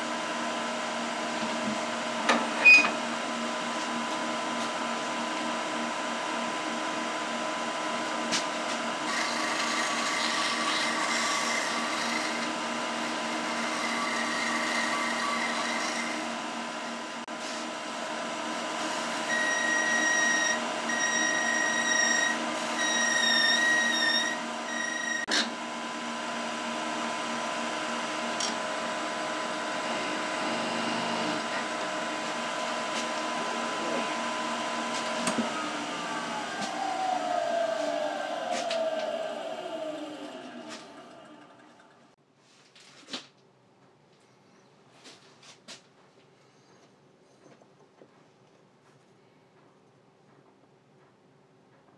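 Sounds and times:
wood lathe motor humming: 0:09.0 - 0:17.2, 0:18.0 - 0:25.5, 0:26.4 - 0:42.0.

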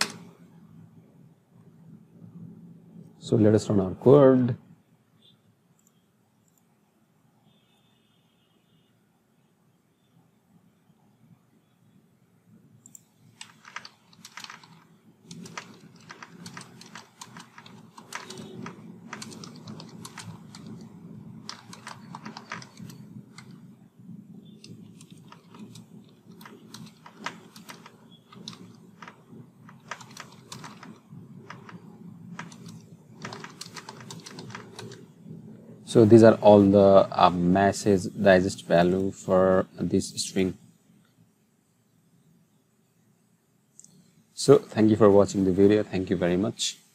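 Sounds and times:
keyboard key clicks: 0:12.8 - 0:23.6, 0:24.6 - 0:35.0.

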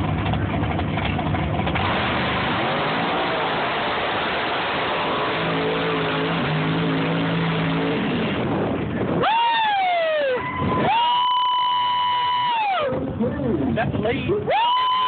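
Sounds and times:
truck engine at full throttle: 0:00.0 - 0:14.6.

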